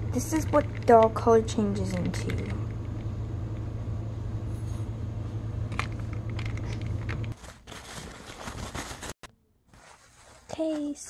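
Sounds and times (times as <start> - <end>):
low machine hum: 0.0 - 9.1
handling noise: 5.6 - 11.0.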